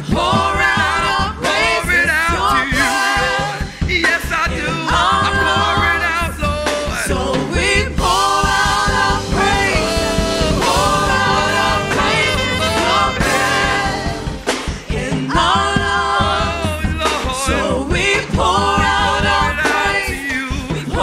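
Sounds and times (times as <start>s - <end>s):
choir singing in harmony: 0.0s - 21.0s
electric bass guitar: 7.2s - 16.3s.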